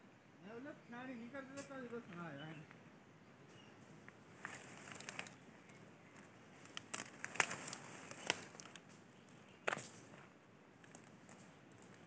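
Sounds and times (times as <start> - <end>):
leaves rustling: 3.5 - 12.0
sickle cutting grass stems: 4.4 - 5.4, 6.1 - 9.0.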